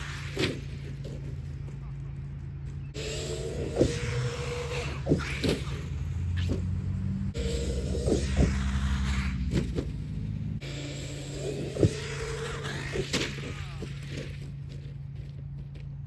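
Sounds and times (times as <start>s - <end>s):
sharp thuds of landings: 0.0s - 1.6s, 3.4s - 10.6s, 11.2s - 14.9s
low hum of rc trucks: 0.0s - 16.0s.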